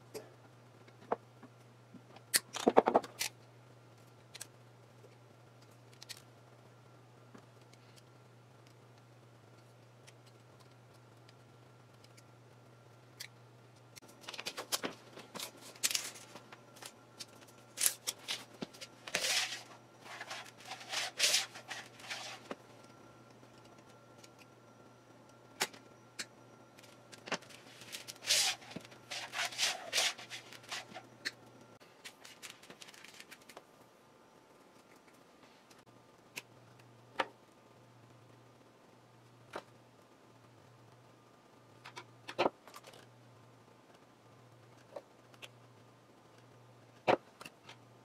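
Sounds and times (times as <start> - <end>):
rustling and scraping of materials: 14.0 - 24.5, 26.8 - 33.7.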